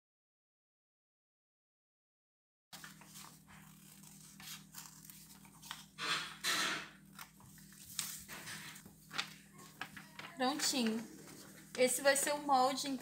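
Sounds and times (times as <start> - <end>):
scissors cutting paper: 2.8 - 12.4
paper rustling: 2.8 - 13.0.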